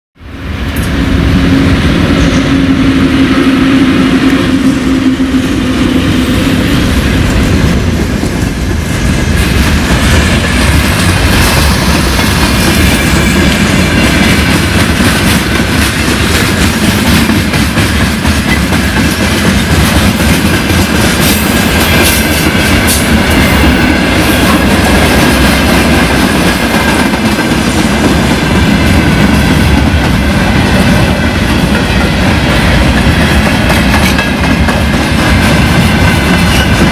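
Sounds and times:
electric locomotive hum: 0:00.2 - 0:36.9
train wheels clattering over rail joints: 0:07.4 - 0:23.8, 0:30.8 - 0:36.9.

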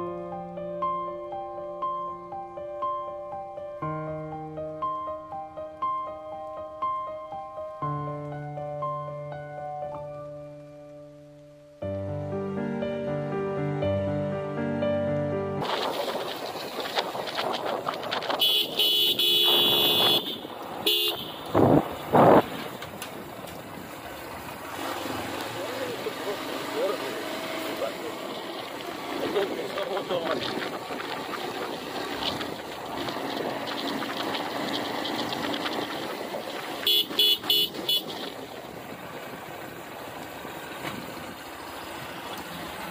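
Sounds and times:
motorcycle engine and tyre noise: 0:15.6 - 0:42.9
wind and road noise: 0:15.6 - 0:42.9
motorcycle horn honking: 0:18.4 - 0:21.8, 0:36.8 - 0:38.3.

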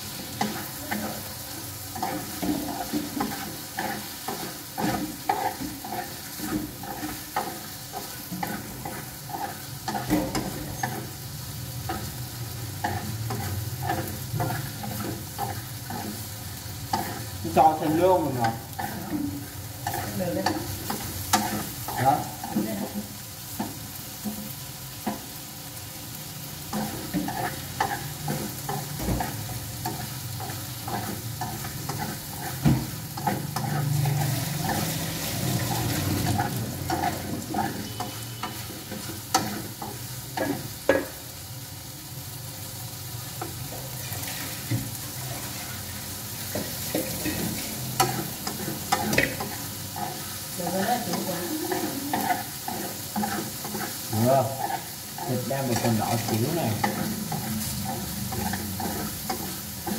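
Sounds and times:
meat and onions sizzling in pan: 0:00.0 - 0:59.9.

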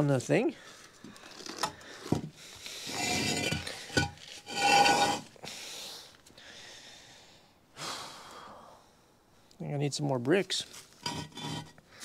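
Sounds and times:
motorcycle scraping on bricks: 0:02.9 - 0:05.3, 0:11.0 - 0:11.8.

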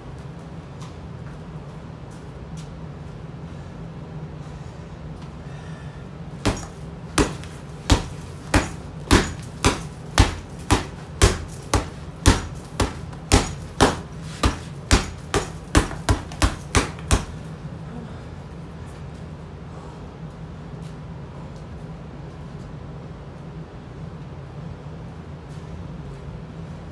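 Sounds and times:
fists punching heavy bag: 0:06.4 - 0:17.5.

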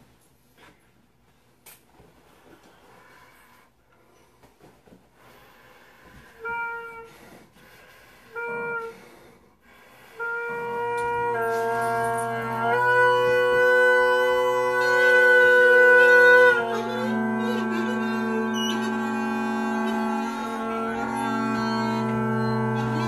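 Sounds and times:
bagpipe chanter playing a tune: 0:06.3 - 0:07.4, 0:08.3 - 0:09.3, 0:10.0 - 0:23.0
bagpipe drones humming: 0:06.4 - 0:07.4, 0:08.3 - 0:09.3, 0:10.0 - 0:23.0.

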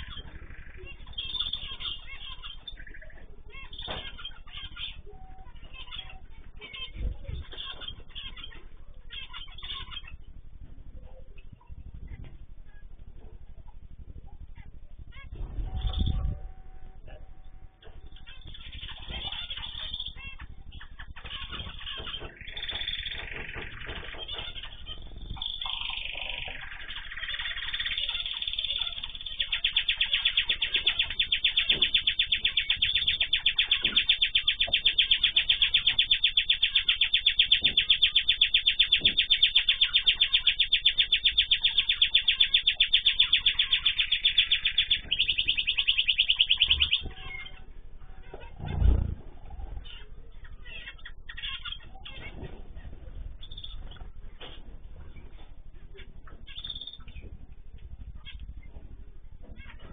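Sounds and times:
bird chirps: 0:00.0 - 0:14.4, 0:15.0 - 0:58.8, 0:59.4 - 0:59.9
songbird trilling: 0:18.0 - 0:47.6, 0:53.4 - 0:54.0, 0:56.2 - 0:57.3.

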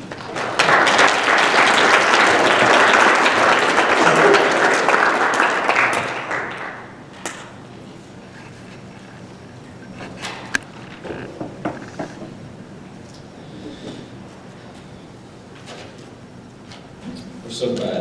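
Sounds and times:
congregation applauding: 0:00.0 - 0:07.4.

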